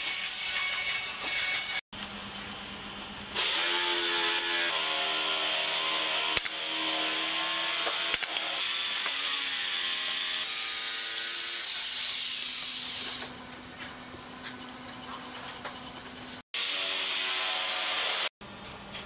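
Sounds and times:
mechanical hum: 0.0s - 9.8s, 18.4s - 19.0s.

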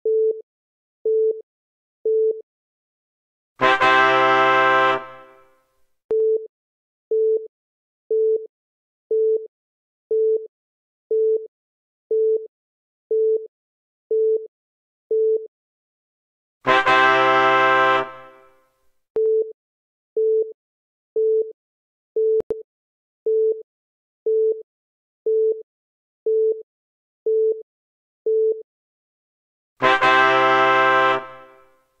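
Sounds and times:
multi-tone horn blast: 3.6s - 5.6s, 16.6s - 18.6s, 29.8s - 31.7s.

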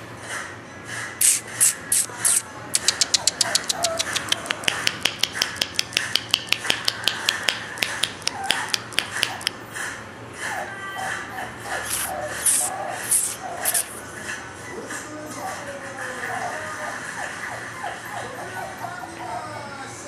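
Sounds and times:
fast sharp clicks: 1.2s - 9.6s.

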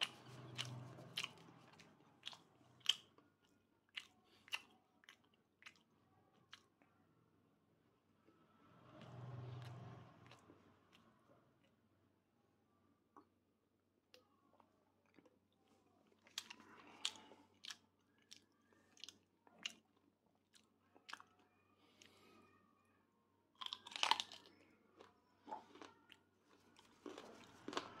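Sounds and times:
person chewing crunchy food: 0.0s - 5.9s, 15.0s - 21.4s, 23.6s - 28.0s.

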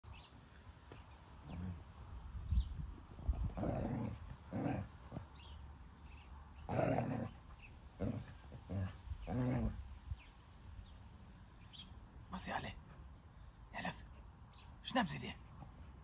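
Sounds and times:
dog play-growling: 3.2s - 5.5s, 6.6s - 9.9s.

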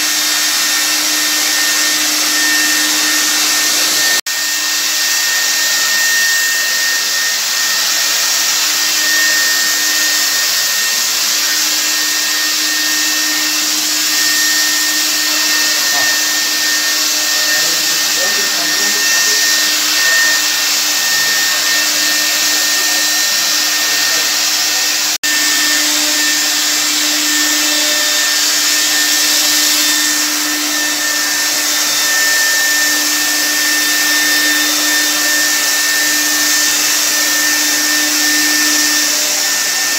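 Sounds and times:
fogger blower motor rushing: 0.0s - 39.9s.

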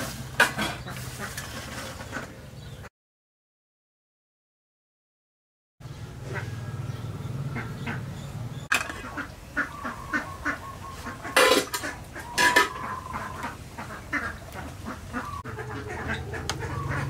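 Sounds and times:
ducks quacking: 0.4s - 2.9s, 6.2s - 17.0s.

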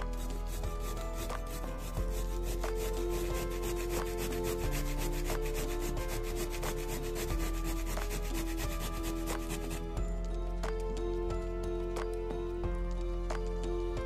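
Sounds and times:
carrot rasping on metal grater: 0.0s - 9.8s.

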